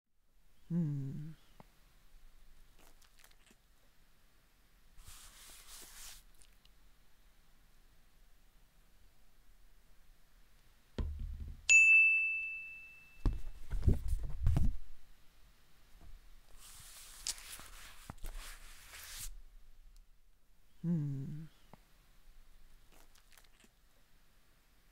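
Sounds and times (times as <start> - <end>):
scratchy hissing brushing: 5.0 - 6.6, 16.5 - 19.4
low knocks and thumps: 11.0 - 11.7
soft thump: 11.0 - 11.7
bright bell-like ding: 11.7 - 13.3.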